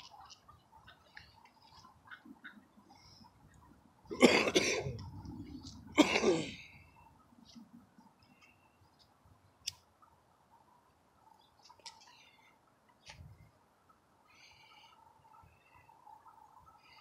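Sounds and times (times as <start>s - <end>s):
person coughing: 4.1s - 5.0s, 5.9s - 6.6s.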